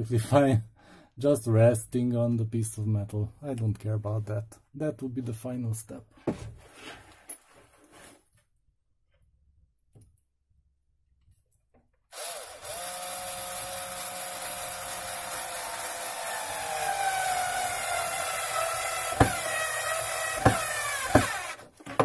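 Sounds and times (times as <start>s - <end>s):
electric screwdriver motor whining: 12.1s - 21.6s.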